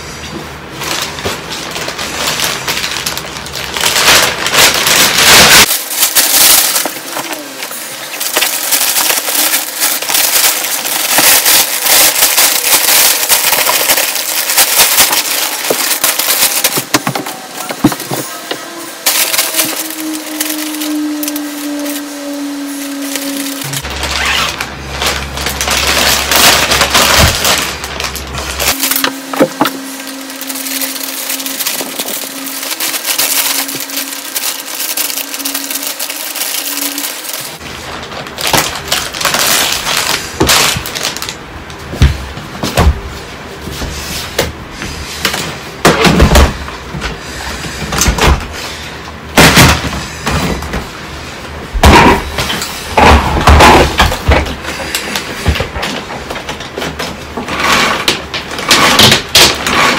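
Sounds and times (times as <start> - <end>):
plastic bag crinkling: 0.6 - 41.5.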